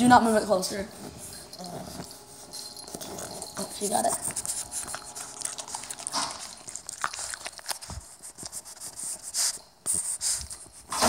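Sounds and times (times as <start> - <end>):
puppy crunching cereal: 2.8 - 11.0.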